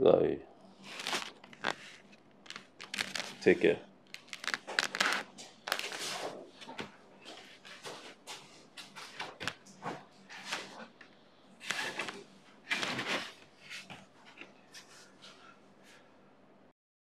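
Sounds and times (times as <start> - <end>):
rustling and small knocks of handling: 0.9 - 3.5, 4.1 - 10.8.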